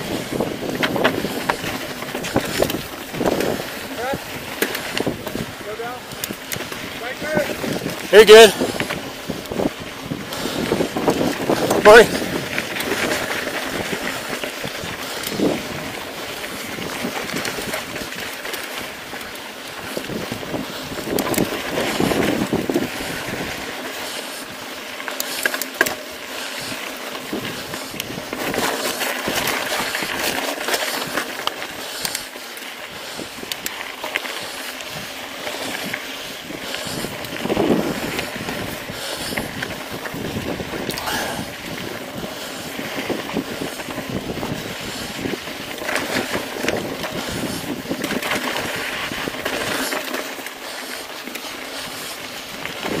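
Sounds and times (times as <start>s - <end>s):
wind rushing over microphone: 0.0s - 18.3s, 18.9s - 23.8s, 34.8s - 49.9s, 51.8s - 53.0s
bike rattles and clicks: 0.0s - 53.0s
tyres crunching on gravel: 0.0s - 53.0s.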